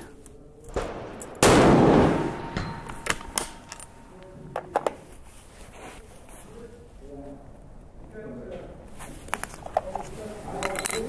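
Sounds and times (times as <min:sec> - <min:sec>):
rifle shot echoing: 0:00.7 - 0:04.2.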